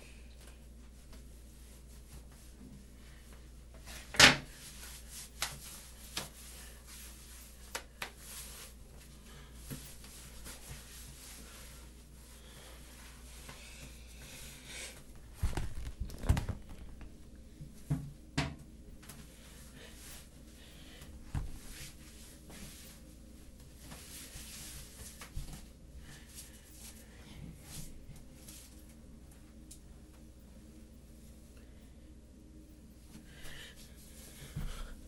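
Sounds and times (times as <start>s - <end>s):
faint low hum: 0.0s - 35.0s
thumps and rustling: 15.2s - 18.2s.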